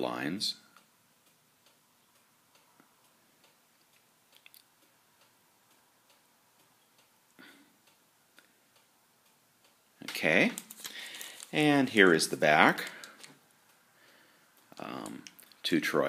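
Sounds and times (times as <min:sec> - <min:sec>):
faint regular ticking: 0:00.0 - 0:16.0.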